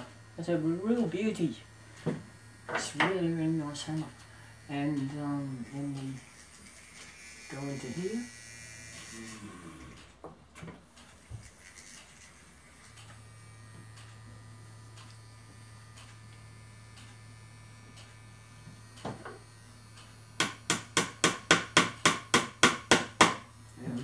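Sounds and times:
electric drill humming: 0:00.0 - 0:24.0
small hammer tapping: 0:20.4 - 0:23.4.

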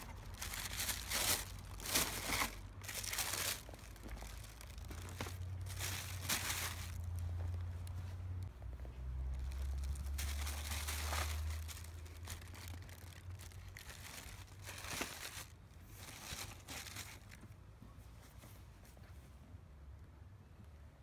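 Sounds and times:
tissue paper rustling and crinkling: 0:00.0 - 0:08.0, 0:09.3 - 0:17.5.

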